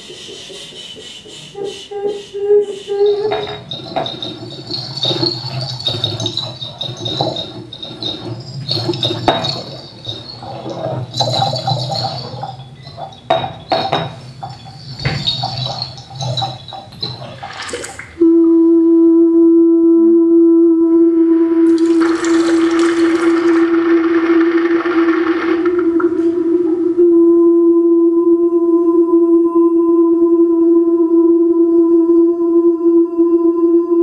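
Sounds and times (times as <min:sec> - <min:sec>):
glass clinks: 0:03.0 - 0:18.2
water pouring into glass: 0:03.2 - 0:18.2, 0:21.7 - 0:26.1.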